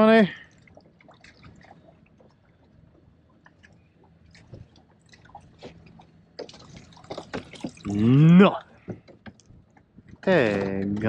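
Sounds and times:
wet clicks drips and splashes: 0.4s - 7.9s.

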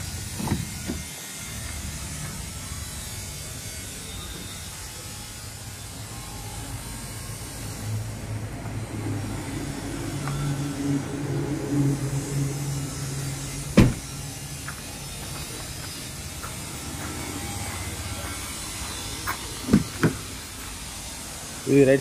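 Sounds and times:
car door slamming: 13.7s - 14.1s.

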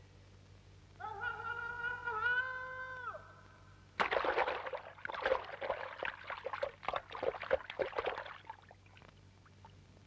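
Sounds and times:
river water splashing: 4.0s - 9.0s.

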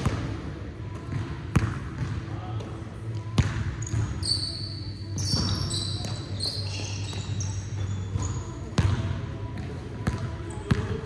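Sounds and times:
sneakers squeaking on wood: 3.7s - 8.8s.

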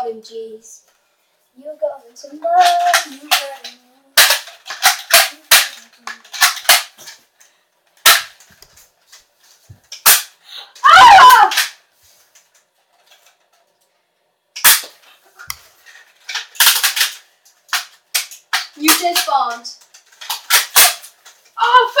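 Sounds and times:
person yelling: 10.8s - 11.7s, 21.6s - 22.0s.

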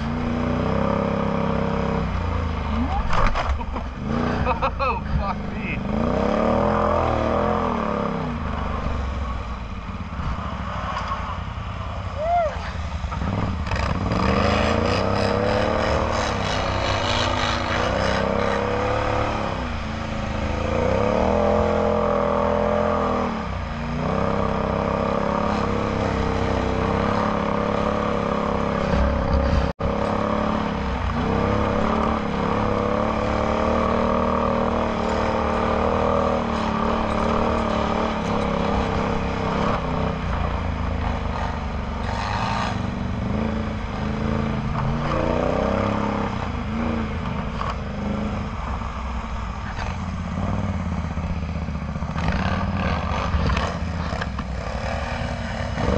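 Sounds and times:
atv engine revving: 0.0s - 8.8s, 13.1s - 48.5s, 49.6s - 55.9s.

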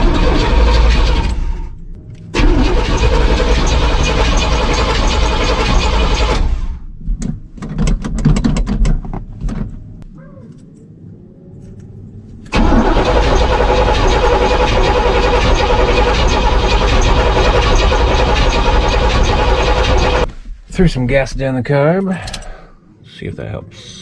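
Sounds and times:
truck engine cranking: 0.0s - 6.9s, 12.4s - 20.3s
engine pops and knocks: 2.4s - 9.8s, 12.5s - 20.3s.

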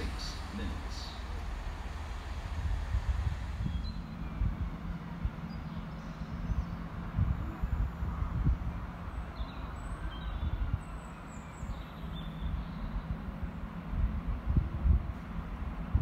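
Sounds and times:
birds chirping: 0.0s - 2.2s, 3.5s - 13.7s
low rumble: 0.0s - 10.9s
wind buffeting microphone: 0.0s - 16.0s.

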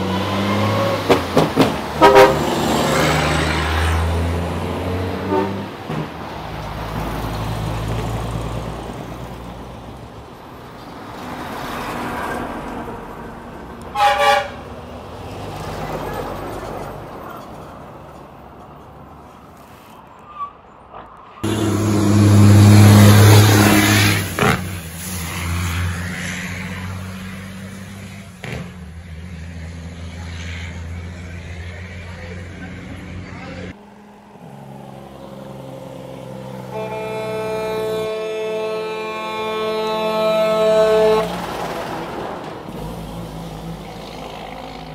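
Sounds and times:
truck horn: 1.9s - 3.3s, 4.9s - 5.9s, 13.9s - 14.7s, 21.4s - 25.2s, 36.5s - 41.5s
truck diesel engine running: 21.4s - 25.2s.

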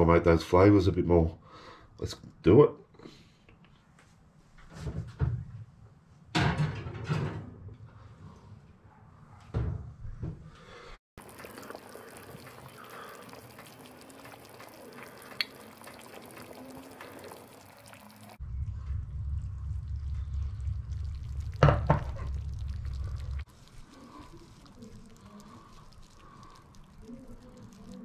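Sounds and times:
food sizzling and bubbling: 11.2s - 28.0s.

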